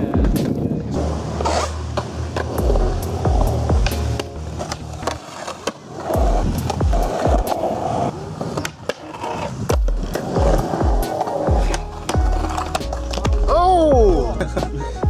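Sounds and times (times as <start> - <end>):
music with bass beat: 0.0 - 0.6, 1.5 - 4.7, 6.2 - 7.6, 9.7 - 15.0
skateboard clacks: 0.0 - 13.5
skateboard wheels rolling on concrete: 0.0 - 14.7
skateboard grinding on ledge: 0.2 - 13.5.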